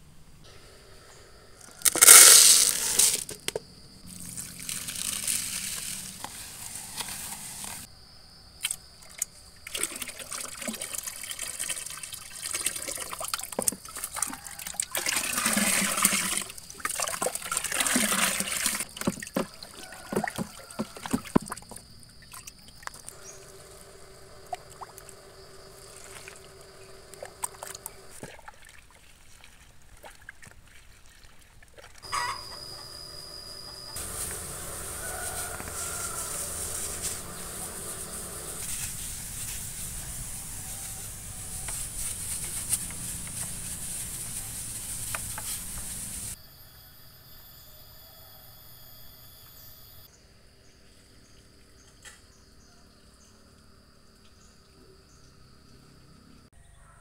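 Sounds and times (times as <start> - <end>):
water pouring into plastic bucket: 4.1 - 6.3, 9.6 - 21.6.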